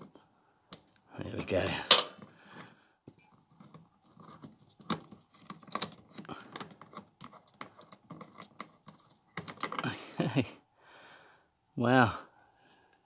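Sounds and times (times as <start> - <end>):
small metal clicks and scrapes: 3.2 - 9.8.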